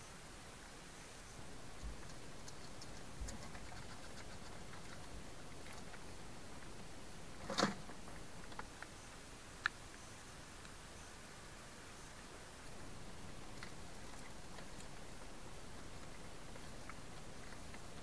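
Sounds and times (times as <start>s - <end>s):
hedgehog chewing clicks: 1.7s - 8.9s, 13.3s - 18.0s.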